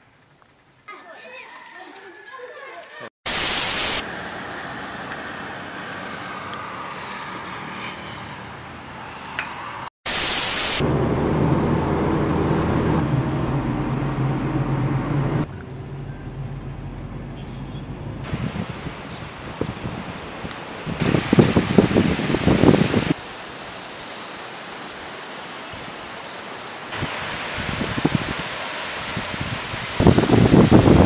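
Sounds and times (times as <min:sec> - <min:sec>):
loud burst of hiss: 0:03.3 - 0:04.0, 0:10.0 - 0:10.8
car engine and road noise: 0:03.6 - 0:23.2.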